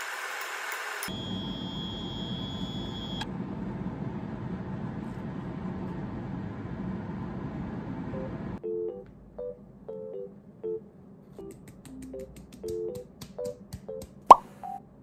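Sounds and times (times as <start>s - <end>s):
kitchen fan running: 3.2s - 8.6s
piano music: 8.2s - 14.8s.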